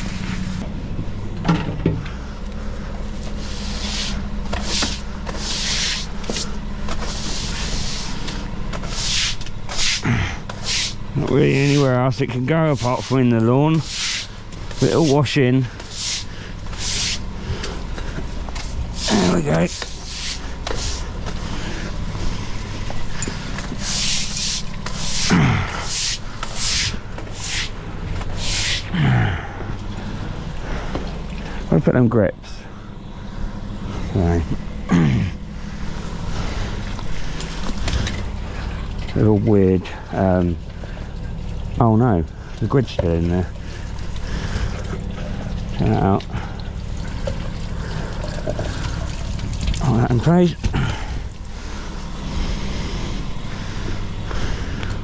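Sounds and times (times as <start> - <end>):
engine running: 0.0 - 55.0
broom sweeping water on stone: 3.2 - 17.3, 18.0 - 21.6, 22.2 - 28.9.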